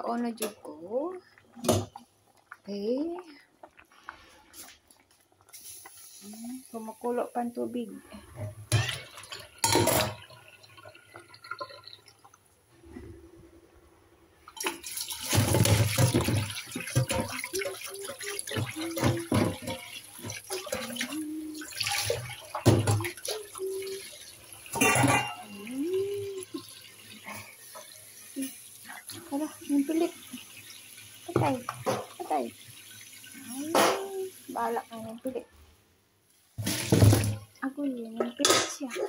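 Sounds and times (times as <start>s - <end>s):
metal pot knocking and squeaking: 8.4s - 10.2s
water splashing into a steel sink: 8.4s - 12.5s, 14.4s - 35.4s, 36.6s - 38.9s.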